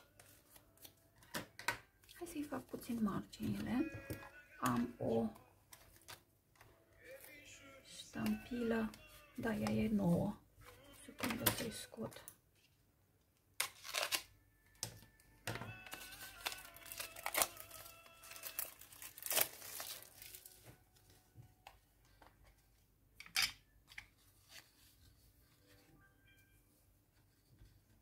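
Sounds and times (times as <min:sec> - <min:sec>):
plastic packaging crinkling: 0:13.6 - 0:14.3, 0:15.7 - 0:20.8
plastic tearing rustles: 0:13.6 - 0:14.3, 0:15.8 - 0:20.8
scissors cutting plastic packaging: 0:13.6 - 0:14.3, 0:15.8 - 0:20.7.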